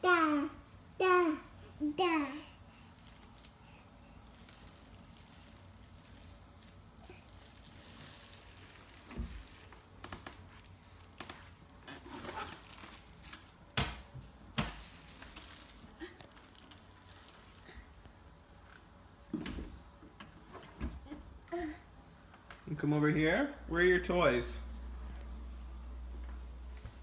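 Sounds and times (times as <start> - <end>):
soft rustling: 1.9 - 13.8, 14.4 - 20.8.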